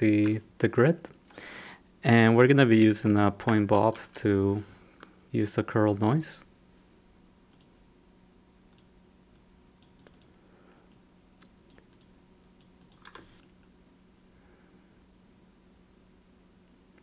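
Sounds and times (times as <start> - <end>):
low steady hum: 0.0 - 17.0
keyboard typing: 9.8 - 10.3, 10.9 - 13.5.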